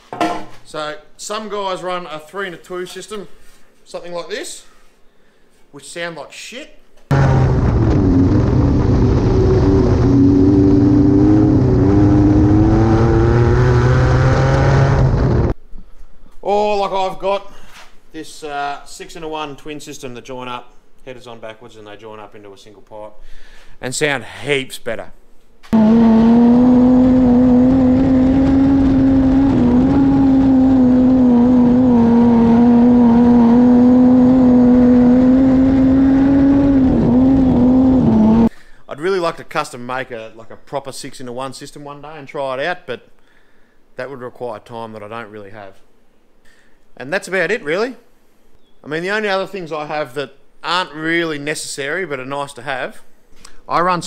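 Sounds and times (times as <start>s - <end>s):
race car engine: 7.1s - 15.6s, 25.8s - 38.5s.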